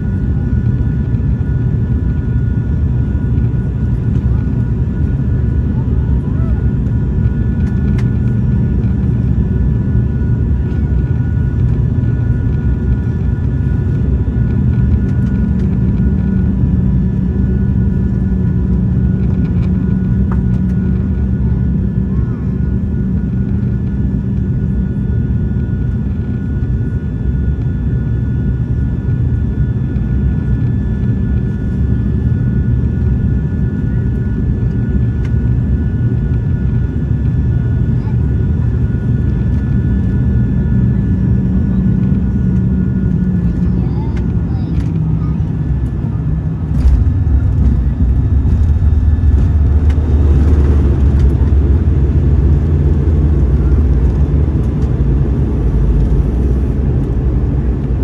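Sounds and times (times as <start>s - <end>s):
turboprop cabin drone: 0.0s - 58.0s.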